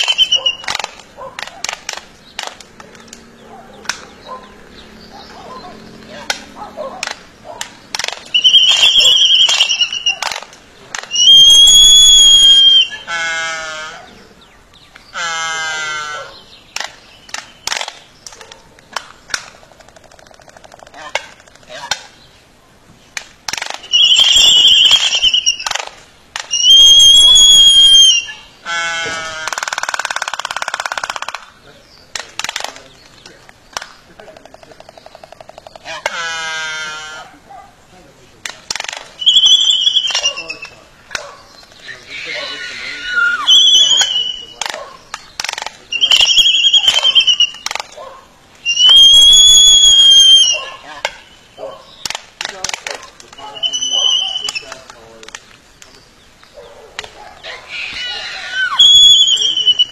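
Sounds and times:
high whistled bird calls: 0:00.0 - 0:06.5, 0:07.4 - 0:13.2, 0:23.6 - 0:28.6, 0:39.0 - 0:48.0, 0:48.6 - 0:52.2, 0:53.2 - 0:55.1, 0:55.7 - 0:59.9
albatross bill clacks: 0:00.0 - 0:13.2, 0:14.7 - 0:22.3, 0:23.1 - 0:59.9
falling drawn-out bird calls: 0:00.0 - 0:22.5, 0:23.5 - 0:37.5, 0:38.6 - 0:59.9.

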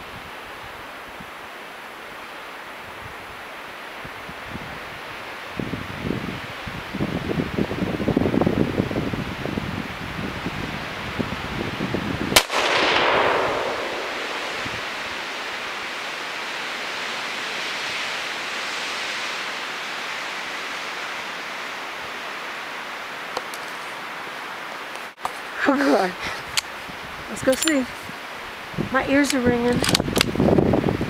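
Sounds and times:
steady hiss: 0:00.0 - 0:31.0
rifle shot echoing: 0:12.4 - 0:15.6.

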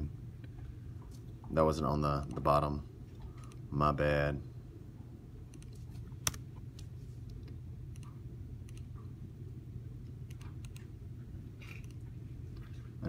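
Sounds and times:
steady low hum: 0:00.0 - 0:13.0
computer mouse clicking: 0:05.5 - 0:06.4, 0:07.3 - 0:08.9, 0:10.2 - 0:10.9, 0:11.6 - 0:12.0.

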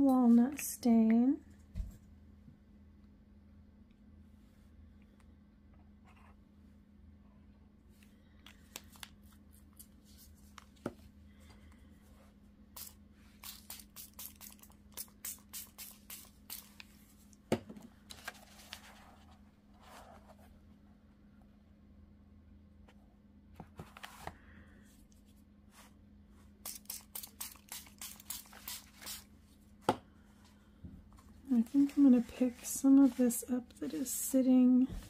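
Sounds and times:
low electrical hum: 0:00.0 - 0:35.0
spray bottle spritzing: 0:12.8 - 0:16.8, 0:26.6 - 0:29.3
paper rustling: 0:18.1 - 0:20.4.

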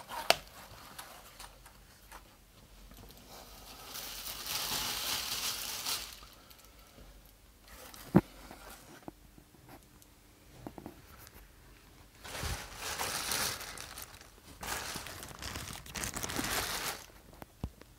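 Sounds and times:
plastic bag crinkling: 0:03.6 - 0:06.8, 0:12.2 - 0:17.3.

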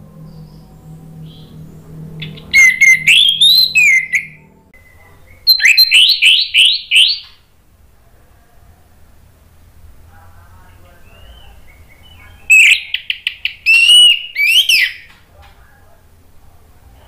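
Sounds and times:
thrush singing whistled notes: 0:00.0 - 0:07.4, 0:11.0 - 0:15.1.

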